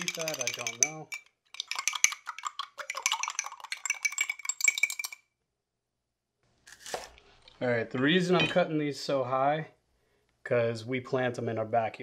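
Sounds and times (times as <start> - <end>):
spoon clinking on glass cup: 0.0 - 5.2.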